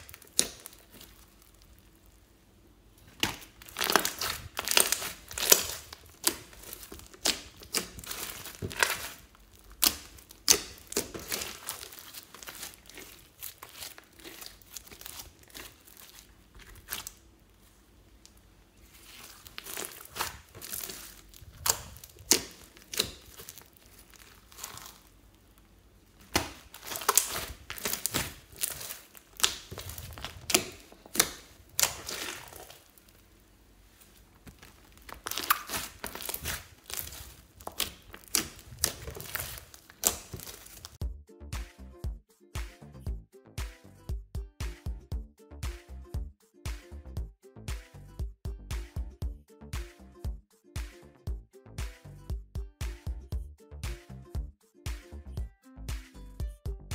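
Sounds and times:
slime crackling and popping: 0.0s - 2.4s, 3.0s - 41.0s.

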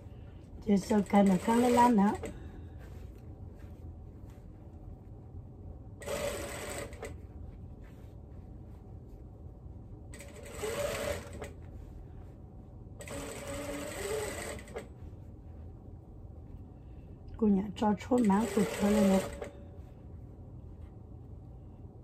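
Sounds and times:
sewing machine stitching: 0.8s - 2.3s, 6.0s - 7.2s, 10.2s - 11.6s, 13.0s - 14.9s, 18.1s - 19.5s.

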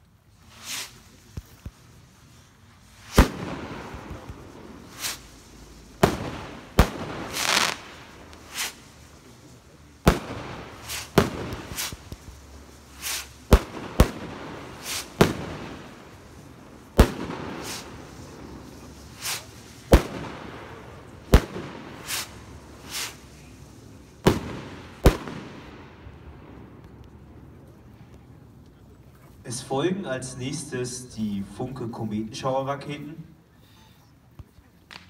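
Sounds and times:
firework rockets bursting: 0.3s - 27.5s
hissing whooshes: 0.4s - 25.7s.

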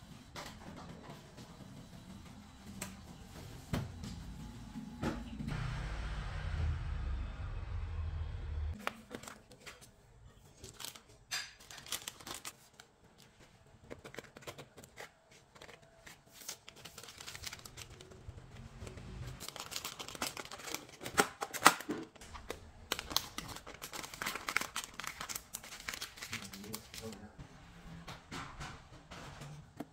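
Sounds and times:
baking paper crinkling: 8.8s - 27.4s.

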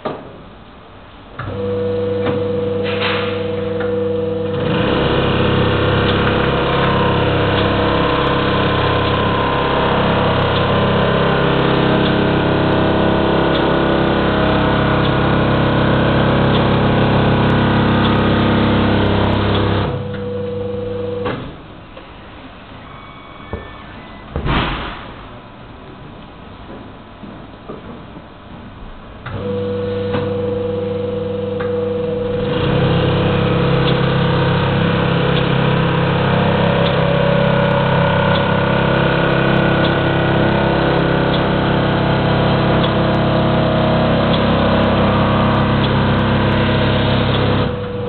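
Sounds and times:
machine hum: 0.5s - 24.3s, 29.2s - 48.0s
paper counting machine whirring: 4.6s - 20.0s, 32.2s - 47.9s.

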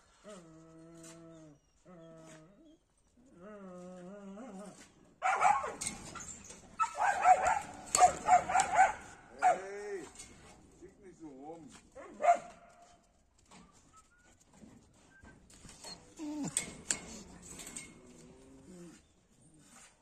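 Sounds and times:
dogs barking and yipping: 5.2s - 9.7s, 12.0s - 12.9s.

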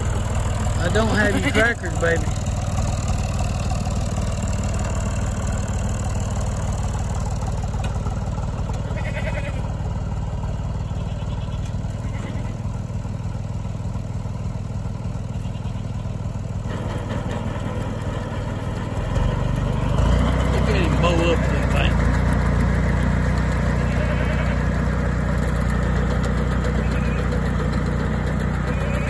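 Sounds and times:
tractor engine idling: 0.0s - 29.0s
goat bleating: 8.7s - 9.8s, 10.8s - 12.7s, 15.3s - 16.0s, 23.5s - 25.0s, 26.6s - 27.5s, 28.5s - 29.0s.

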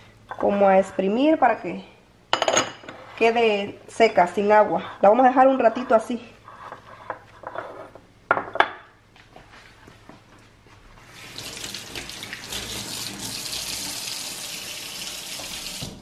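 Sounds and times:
tap water running into sink: 11.1s - 16.0s.

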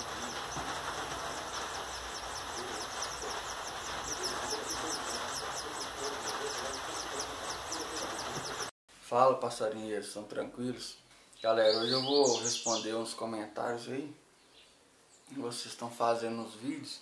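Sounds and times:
nestlings chirping: 0.0s - 8.7s
steady hiss: 0.0s - 9.2s.

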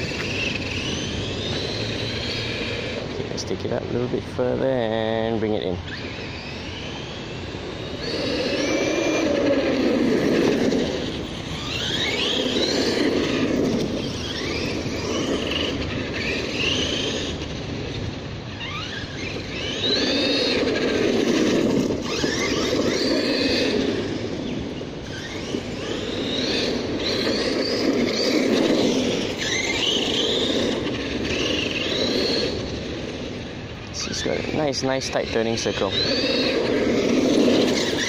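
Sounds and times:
electric motor whining: 0.0s - 38.0s
tyres rolling on brick paving: 7.0s - 34.5s, 35.8s - 38.0s.

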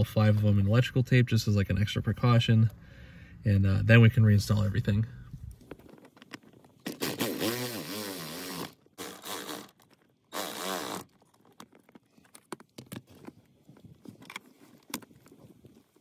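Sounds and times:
tape pulled off roll squealing: 6.8s - 11.2s.

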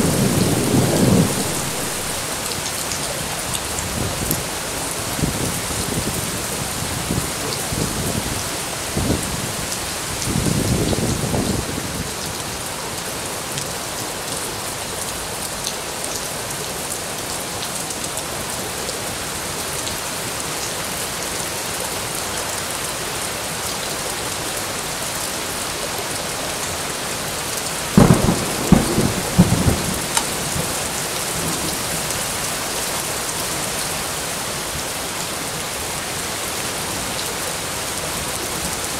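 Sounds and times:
loud thunder clap: 0.0s - 2.2s, 28.0s - 30.6s
low thunder rumbles: 0.0s - 2.3s, 28.0s - 30.8s
heavy rain splashing: 0.0s - 38.9s.

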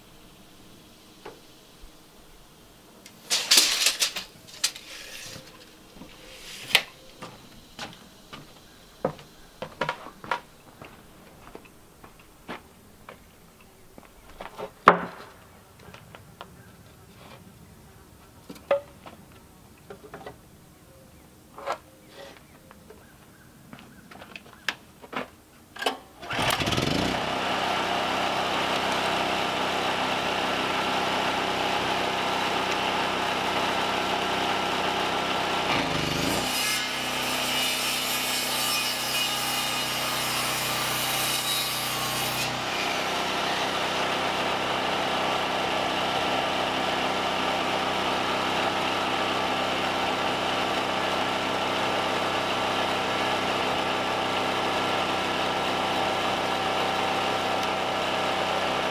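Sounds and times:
generator pull-started and running: 0.0s - 12.4s, 25.7s - 37.3s, 42.0s - 58.9s
circular saw cutting wood: 3.2s - 10.2s, 26.2s - 58.9s.

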